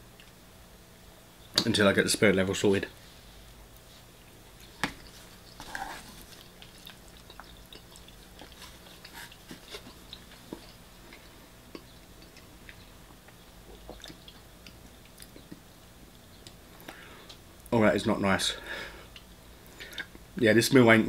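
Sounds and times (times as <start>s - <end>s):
chewing with wet mouth clicks: 6.2s - 17.7s.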